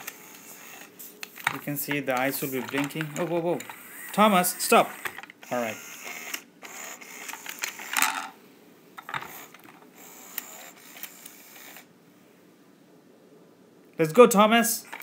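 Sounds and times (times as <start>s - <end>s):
toy motor and gears whirring: 0.0s - 8.3s, 9.0s - 11.9s.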